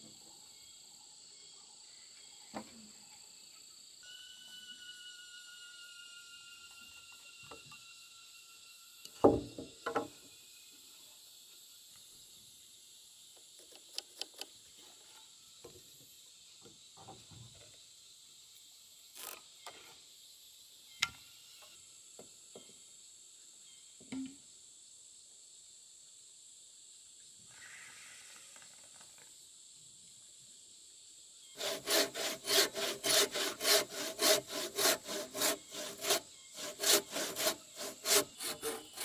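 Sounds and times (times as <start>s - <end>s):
insects chirring: 0.0s - 39.0s
knocks and clicks of timber handling: 9.2s - 10.1s.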